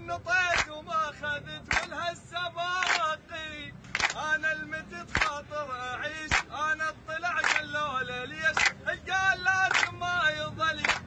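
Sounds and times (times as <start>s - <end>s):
men chanting in unison: 0.0s - 11.0s
people clapping on the beat: 0.4s - 0.8s, 1.6s - 2.0s, 2.8s - 3.2s, 3.8s - 4.3s, 5.1s - 5.5s, 6.2s - 6.6s, 7.4s - 7.8s, 8.4s - 8.8s, 9.6s - 10.0s, 10.7s - 11.0s.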